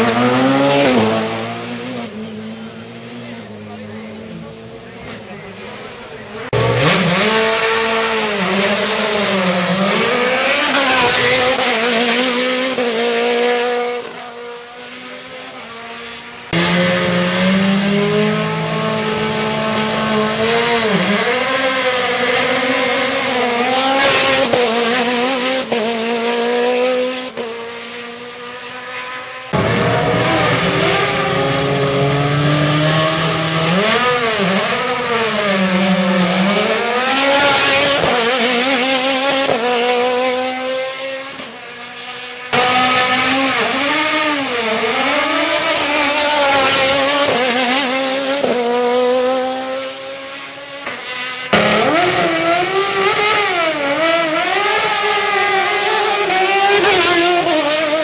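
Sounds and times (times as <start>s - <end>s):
race car engines revving: 0.0s - 58.0s.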